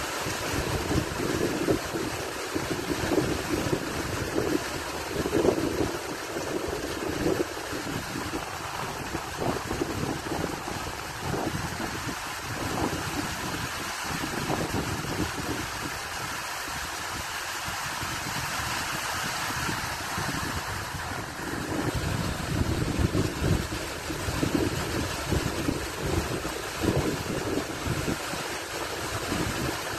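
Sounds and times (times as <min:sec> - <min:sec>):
stream water rushing: 0:00.0 - 0:29.9.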